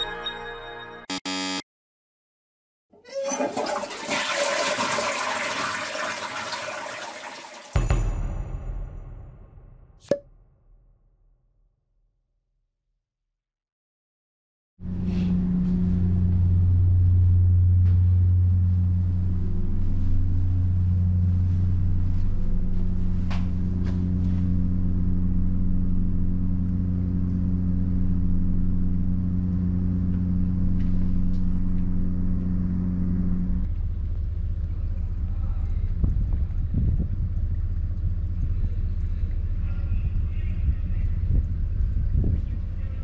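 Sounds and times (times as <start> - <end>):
deep machine hum: 14.8 - 43.0
rough low rumble: 14.9 - 43.0.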